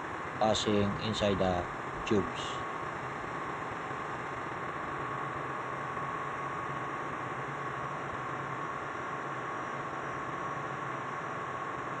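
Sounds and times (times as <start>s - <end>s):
engine room machinery hiss: 0.4s - 2.7s.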